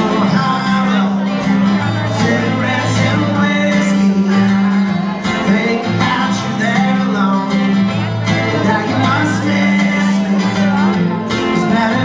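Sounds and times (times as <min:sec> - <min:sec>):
acoustic guitar strumming: 0:00.0 - 0:12.0
man singing through pa: 0:00.0 - 0:12.0.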